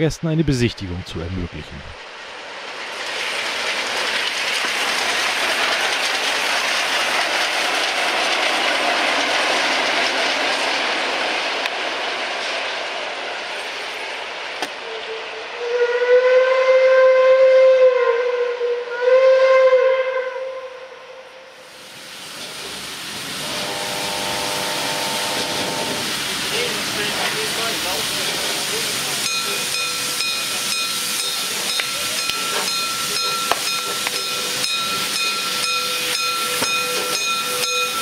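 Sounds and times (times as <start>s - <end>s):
train passing: 0.0s - 19.6s, 20.4s - 38.0s
steam locomotive whistle: 14.8s - 21.7s, 23.3s - 26.2s, 29.2s - 38.0s.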